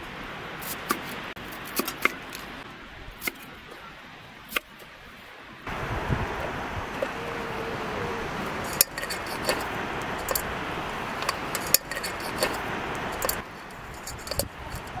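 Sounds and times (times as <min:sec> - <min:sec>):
steady hiss: 0:00.0 - 0:15.0
cookware and utensils clinking: 0:11.2 - 0:15.0.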